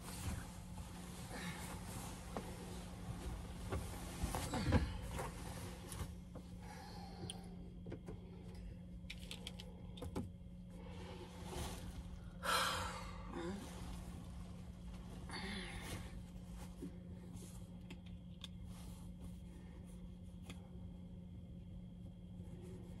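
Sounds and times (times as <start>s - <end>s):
bedding rustling: 0.0s - 7.1s, 10.7s - 17.8s
steady low hum: 0.0s - 23.0s.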